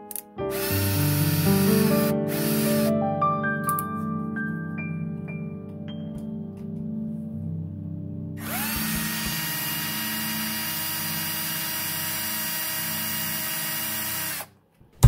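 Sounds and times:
electric power tool motor whine: 0.6s - 2.9s, 8.4s - 14.5s.

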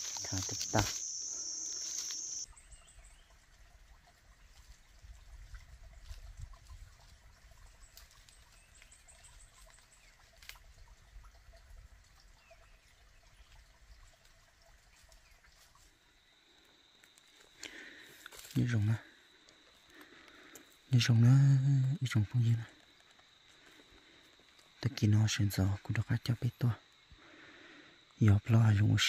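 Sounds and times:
loud high hiss: 0.0s - 2.4s.

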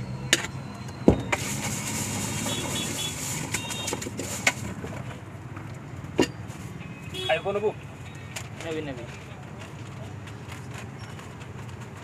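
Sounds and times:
traffic hum: 0.0s - 12.0s
dry rustling of puffed rice: 1.4s - 4.7s.

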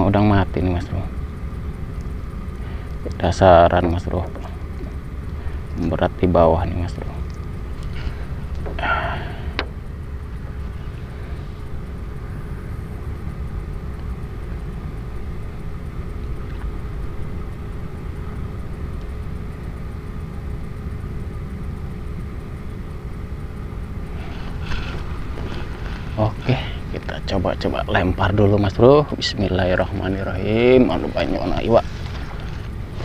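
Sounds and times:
faint even hum: 0.0s - 33.0s
low outdoor rumble: 0.0s - 33.0s.

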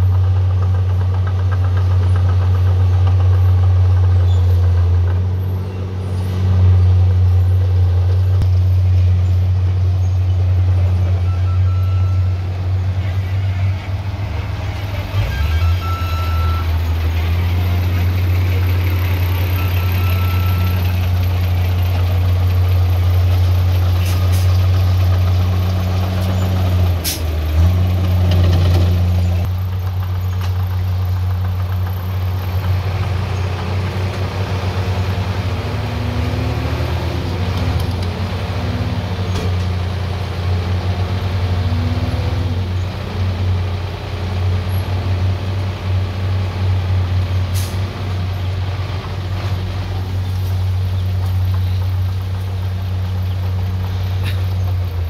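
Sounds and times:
heavy diesel engine droning: 0.0s - 55.0s.

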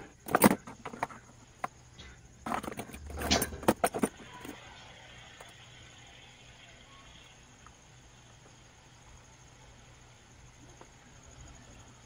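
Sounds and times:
tools clicking and clattering: 0.0s - 4.6s.

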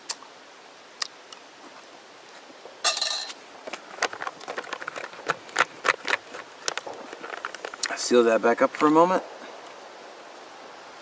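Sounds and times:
food pouch crinkling: 3.7s - 7.9s.

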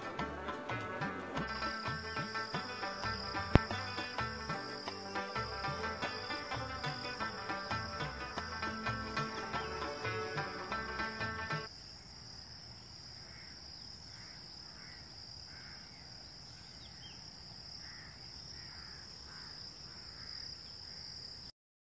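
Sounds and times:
background music: 0.0s - 11.7s
insect chirring: 1.4s - 21.5s
faint bird calls: 13.2s - 17.2s, 17.8s - 21.5s.

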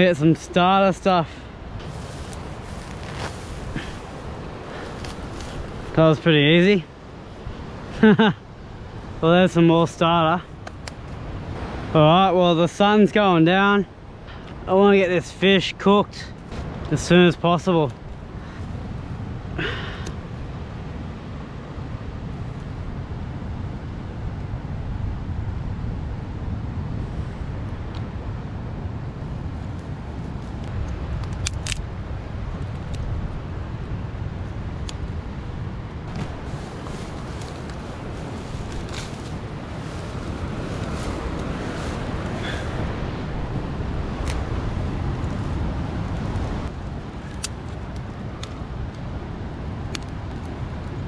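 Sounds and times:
wind rumble on microphone: 0.0s - 13.2s, 16.2s - 51.0s
dry grass crackling in fire: 1.8s - 8.2s, 29.2s - 51.0s.

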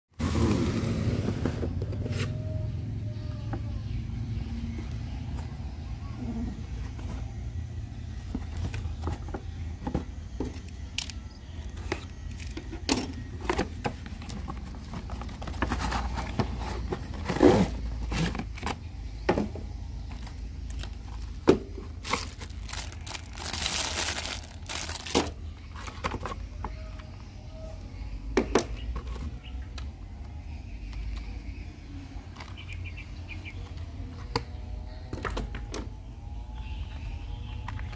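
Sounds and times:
plastic crinkling: 20.7s - 25.4s.

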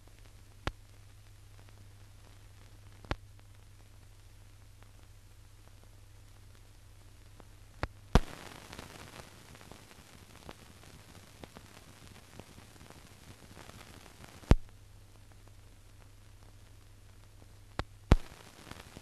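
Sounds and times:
faint crackles: 0.0s - 19.0s
film soundtrack hiss: 0.0s - 19.0s
sharp loud pop: 8.2s - 8.4s, 18.1s - 18.4s.

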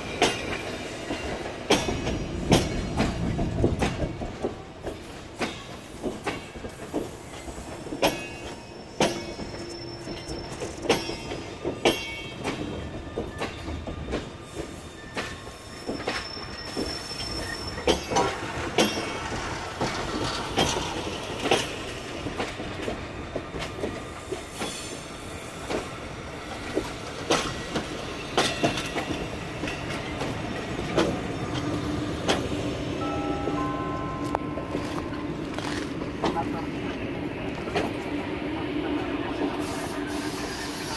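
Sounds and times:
train wheels clicking on rail joints: 0.0s - 33.0s, 34.2s - 38.4s
thin wheel squeals: 14.8s - 18.1s.

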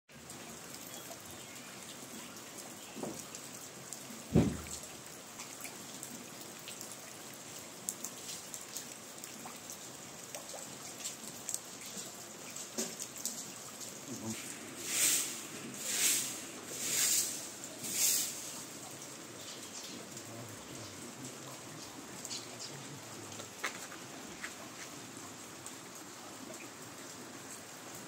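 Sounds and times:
steady rain falling: 0.1s - 28.0s
raindrops clicking: 0.2s - 14.6s, 16.9s - 27.0s
dull thump: 4.3s - 4.7s.

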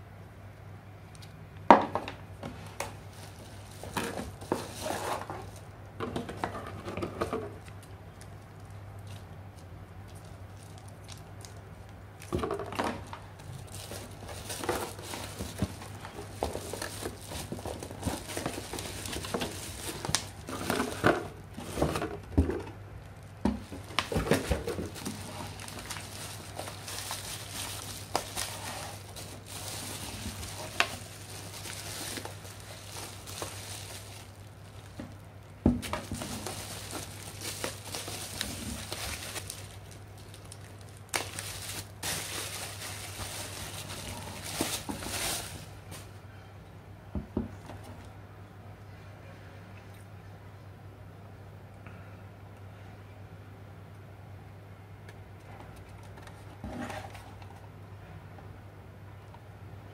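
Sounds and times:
bubble wrap crinkling: 2.4s - 46.2s.

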